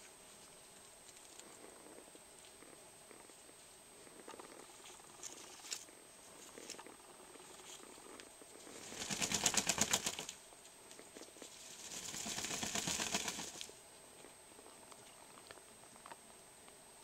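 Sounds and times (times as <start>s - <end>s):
feather rustling: 8.6s - 10.3s, 11.4s - 13.7s
ducks flapping wings: 8.7s - 10.4s, 11.4s - 13.7s.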